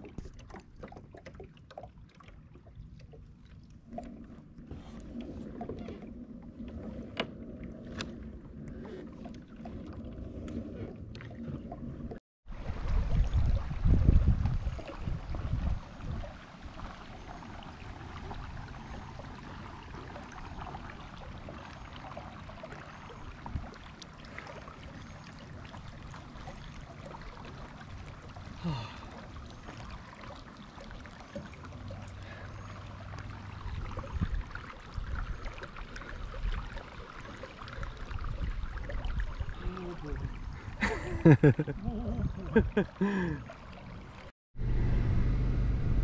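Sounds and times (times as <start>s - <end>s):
paddle dipping into water: 0.0s - 44.3s
water lapping along hull: 0.0s - 46.0s
wind rumble on microphone: 3.9s - 19.8s, 33.3s - 36.8s, 37.7s - 43.0s, 44.6s - 46.0s.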